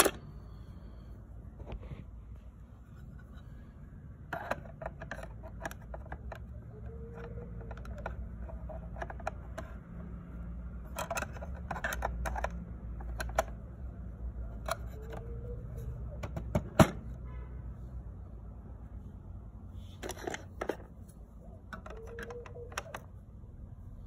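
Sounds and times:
plastic toy parts clicking: 0.0s - 0.2s, 4.3s - 10.2s, 10.8s - 13.6s, 14.5s - 15.4s, 20.0s - 20.9s, 21.6s - 23.1s.

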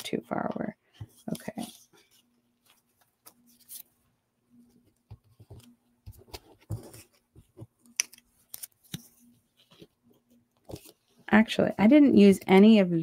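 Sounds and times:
paper clicks and rustles: 1.0s - 4.0s, 4.7s - 11.2s.

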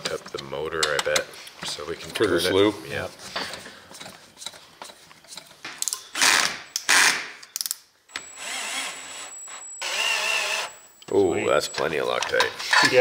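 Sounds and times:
cordless drill driving screws: 6.2s - 7.2s, 8.2s - 10.8s.

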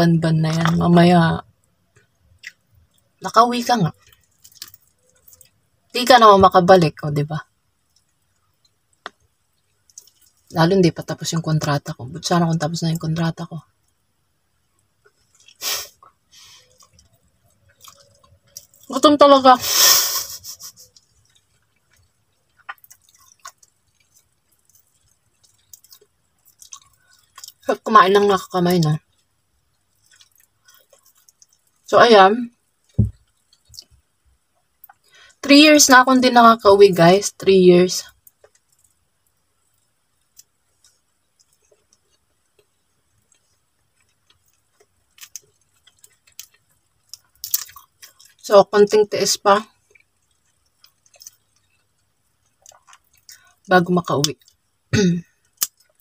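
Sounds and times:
faint eating clicks: 1.5s - 6.6s, 7.4s - 19.6s, 20.5s - 35.4s, 37.3s - 56.0s
person chewing food: 1.9s - 3.2s, 3.9s - 5.8s, 7.7s - 10.5s, 13.7s - 19.0s, 19.7s - 31.9s, 32.5s - 35.4s, 38.1s - 48.5s, 49.6s - 53.7s, 54.3s - 56.0s.

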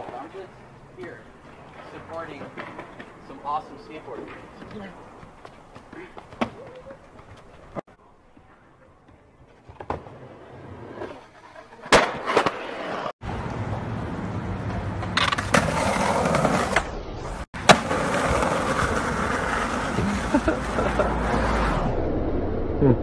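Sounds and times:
skateboard wheels rolling on pavement: 0.0s - 21.9s
skateboard impacts: 4.2s - 7.8s, 9.0s - 13.8s, 14.6s - 16.9s, 17.6s - 21.7s.

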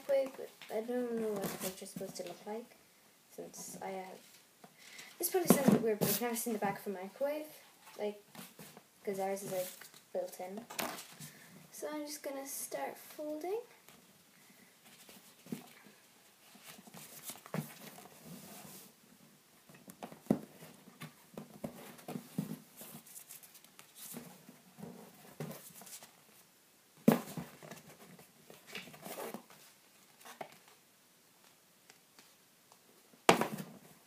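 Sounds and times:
paper rustling and crinkling: 14.9s - 18.8s.

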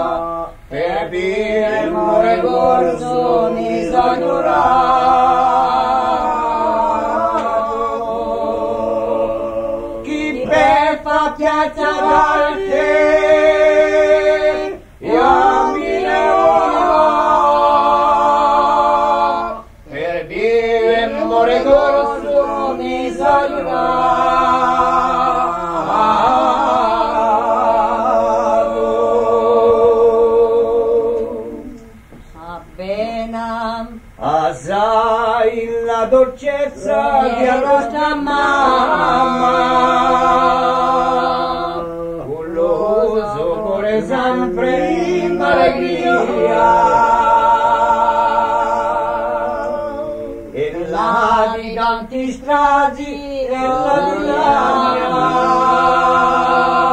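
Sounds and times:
voices singing in close harmony: 0.0s - 56.9s.

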